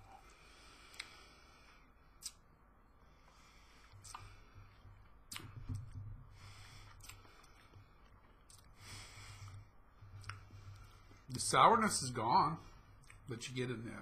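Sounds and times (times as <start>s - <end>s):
lip smacks and tongue clicks: 0.9s - 1.2s, 2.2s - 2.5s, 3.8s - 6.0s, 6.8s - 8.8s, 10.2s - 10.5s
soft breaths out: 3.0s - 11.3s.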